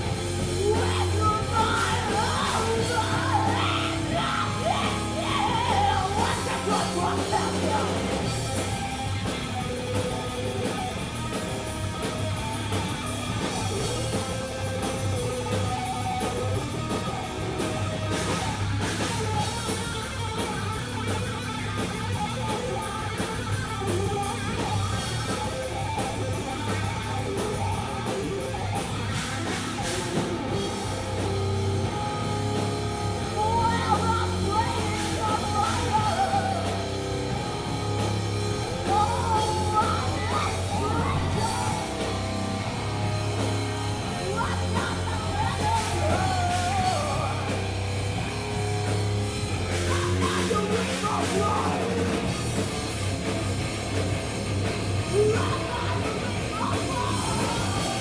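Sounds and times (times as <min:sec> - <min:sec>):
bass guitar: 0:00.0 - 0:58.0
distorted electric guitar: 0:00.0 - 0:58.0
drum kit: 0:00.0 - 0:58.0
shouted lead vocals: 0:00.0 - 0:58.0.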